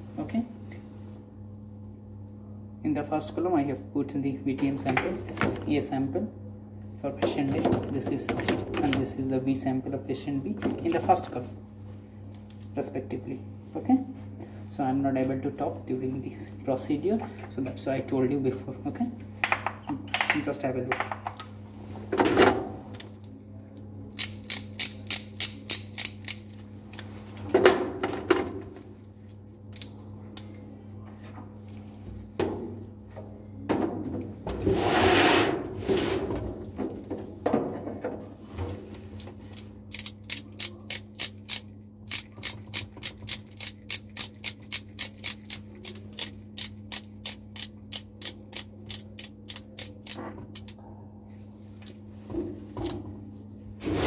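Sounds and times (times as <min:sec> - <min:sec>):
blower hum: 0:00.0 - 0:54.0
ratchet-like clicking: 0:39.9 - 0:50.7.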